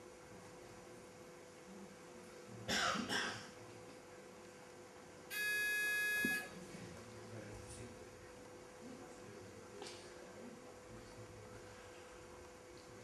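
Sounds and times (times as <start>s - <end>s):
high electronic beep: 5.3s - 6.5s.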